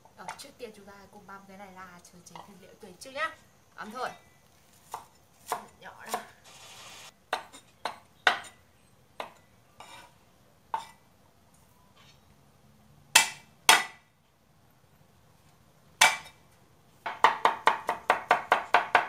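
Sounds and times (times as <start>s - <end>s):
cleaver chopping on wooden board: 13.2s - 14.0s, 16.0s - 16.3s.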